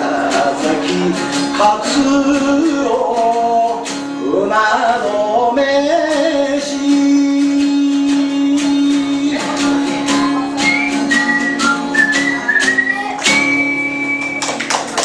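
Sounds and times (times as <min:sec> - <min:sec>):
man singing: 0:00.0 - 0:12.9
acoustic guitar strumming: 0:00.0 - 0:15.0.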